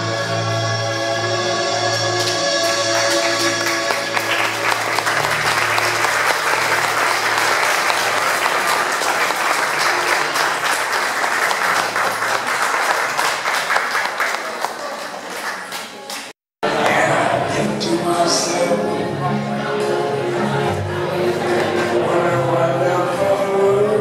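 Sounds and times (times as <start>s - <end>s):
crowd applauding: 1.9s - 17.1s.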